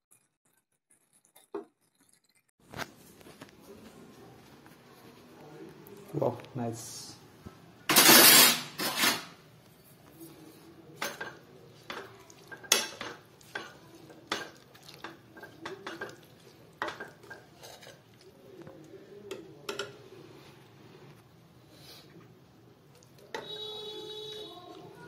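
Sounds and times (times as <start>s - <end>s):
ladle scraping a pan: 7.9s - 9.4s, 10.3s - 18.3s.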